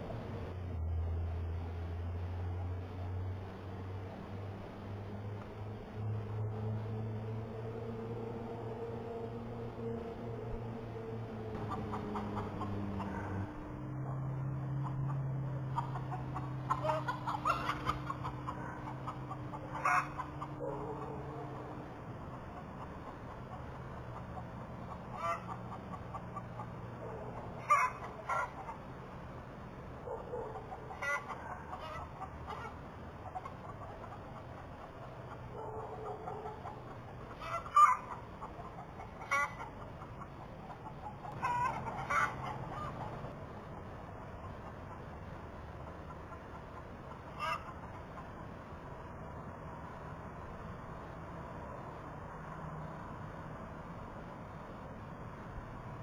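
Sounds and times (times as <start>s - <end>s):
chickens clucking: 10.6s - 29.0s, 30.0s - 48.4s
chicken squawk: 14.8s - 21.8s, 24.9s - 28.8s, 30.1s - 43.3s, 46.3s - 48.0s.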